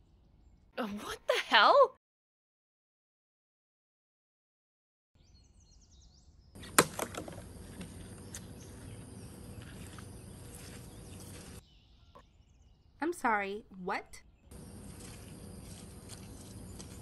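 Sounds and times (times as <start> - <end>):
sharp knocks: 6.6 - 7.5
outdoor ambience hiss: 6.6 - 11.6, 14.5 - 17.0
faint bird chirps: 7.6 - 13.4.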